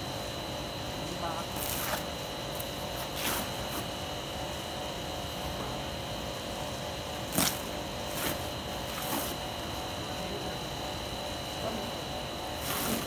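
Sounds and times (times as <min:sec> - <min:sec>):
machine hum and high whine: 0:00.0 - 0:13.0
bubble wrap rustling: 0:12.6 - 0:13.0.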